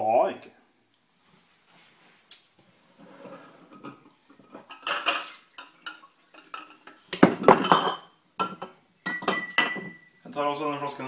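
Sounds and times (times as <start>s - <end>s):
glass bottles clinking: 3.7s - 10.2s.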